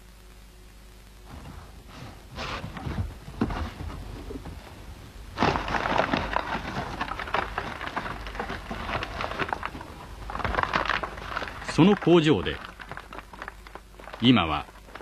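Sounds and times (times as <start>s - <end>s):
plastic bag liner crinkling: 5.4s - 15.0s.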